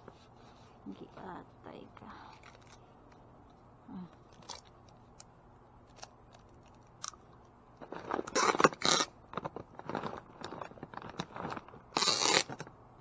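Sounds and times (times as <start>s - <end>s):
tape pulled off roll: 7.8s - 12.7s.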